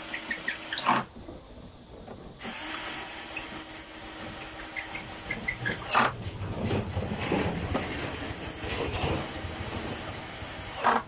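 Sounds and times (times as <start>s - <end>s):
cordless drill driving screws: 2.4s - 6.2s, 10.4s - 11.0s.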